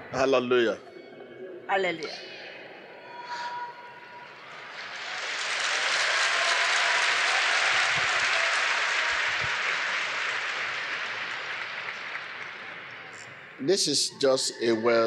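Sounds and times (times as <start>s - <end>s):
crowd applauding: 4.4s - 15.0s.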